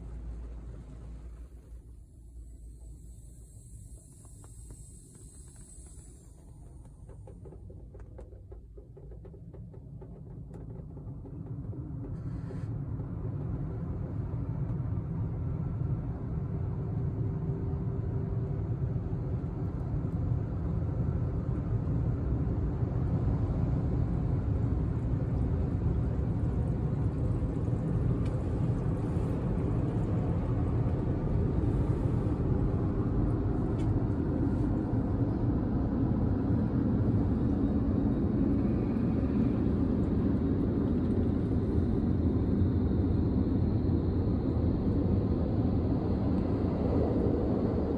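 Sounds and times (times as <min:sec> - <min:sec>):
car wash blowers rushing air: 0:25.8 - 0:47.9.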